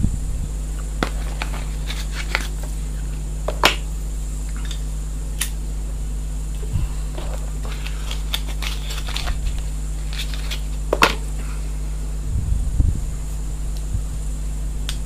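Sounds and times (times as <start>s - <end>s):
steady low hum: 0.0s - 15.0s
cigarette pack clicks and crinkles: 7.2s - 11.2s.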